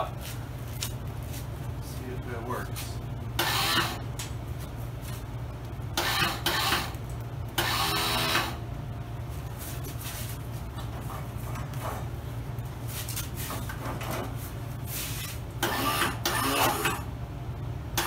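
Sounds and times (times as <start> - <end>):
electric starter cranking engine: 3.4 - 4.0, 7.6 - 8.6, 15.6 - 17.0.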